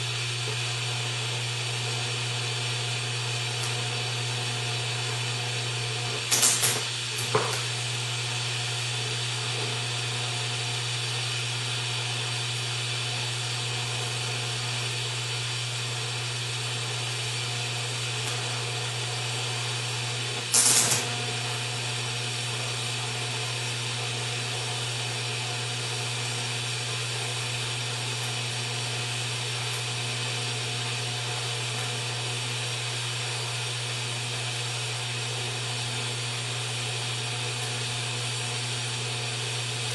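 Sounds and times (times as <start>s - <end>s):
welding arc hissing: 0.0s - 0.6s, 5.9s - 11.8s, 19.9s - 24.0s
loud welding bursts: 6.0s - 8.1s, 20.2s - 22.8s.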